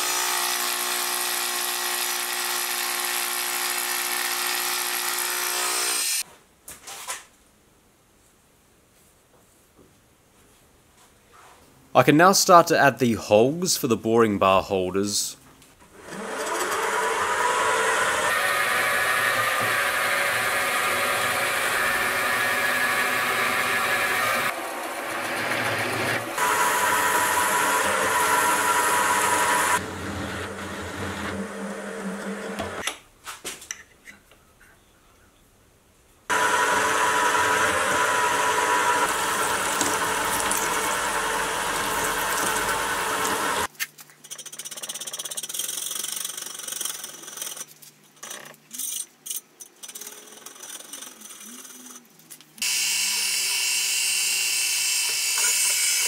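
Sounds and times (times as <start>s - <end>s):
milling machine cutting steel: 16.0s - 32.8s, 36.3s - 43.7s, 52.6s - 56.0s.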